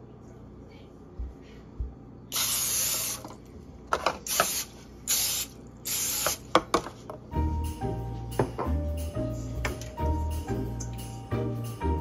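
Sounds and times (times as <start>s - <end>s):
aerosol spray hissing: 4.3s - 6.4s.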